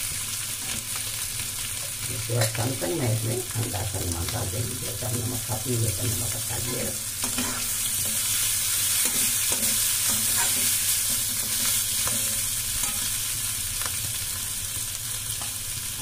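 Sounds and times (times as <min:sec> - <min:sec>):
potatoes sizzling in hot oil: 0:00.0 - 0:16.0
spatula scraping and knocking pan: 0:09.0 - 0:13.1.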